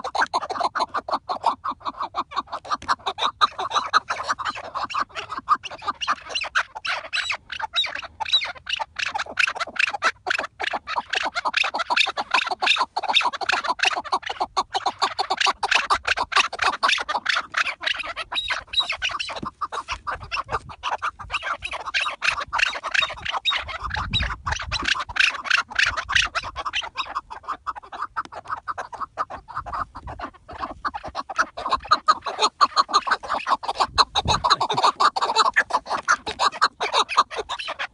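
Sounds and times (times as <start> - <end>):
partridges chucking calls: 0.0 - 37.9.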